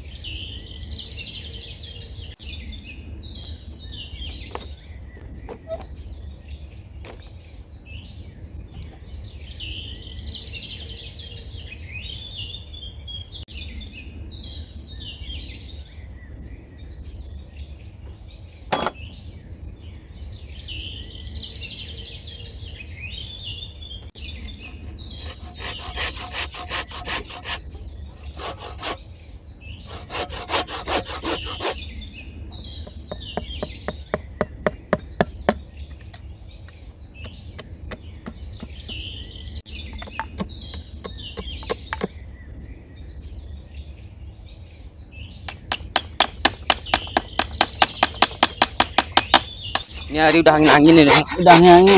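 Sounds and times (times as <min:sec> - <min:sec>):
birds chirping: 0:00.0 - 0:51.9
hand saw cutting wood: 0:24.4 - 0:29.0, 0:29.8 - 0:31.8, 0:47.6 - 0:51.9.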